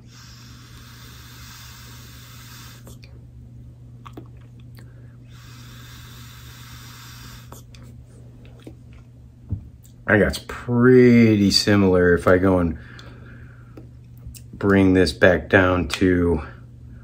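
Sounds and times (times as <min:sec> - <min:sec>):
vape inhaling hiss: 0:00.0 - 0:03.0, 0:05.2 - 0:07.7
low steady hum: 0:00.0 - 0:17.0.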